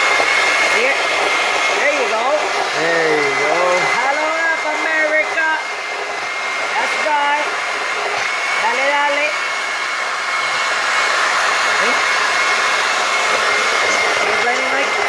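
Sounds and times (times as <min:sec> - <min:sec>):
blender motor running: 0:00.0 - 0:15.0.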